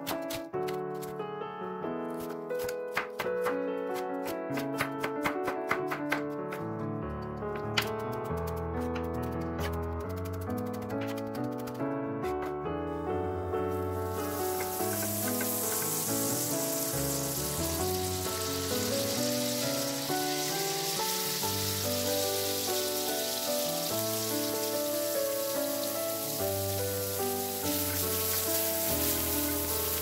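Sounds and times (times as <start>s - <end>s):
butter sizzling in a frying pan: 13.9s - 30.0s
vegetables frying while stirred: 14.0s - 30.0s.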